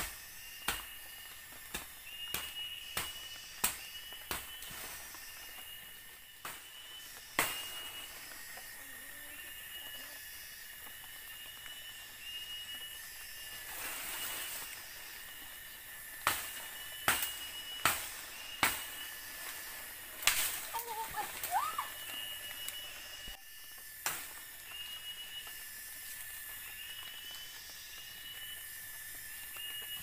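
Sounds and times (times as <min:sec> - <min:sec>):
high-pitched insect drone: 0:00.0 - 0:30.0
rising and falling call: 0:20.8 - 0:23.4.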